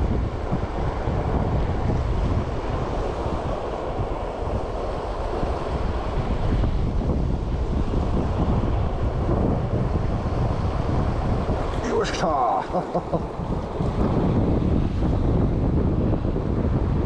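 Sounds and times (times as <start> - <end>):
wind buffeting microphone: 0.0 - 17.0
mountain stream rushing: 11.7 - 14.1.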